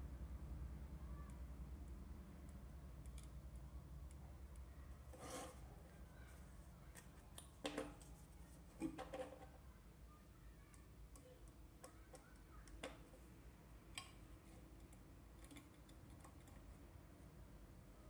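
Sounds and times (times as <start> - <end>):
low steady hum: 0.0 - 18.0
plastic handling scrapes: 5.1 - 6.4.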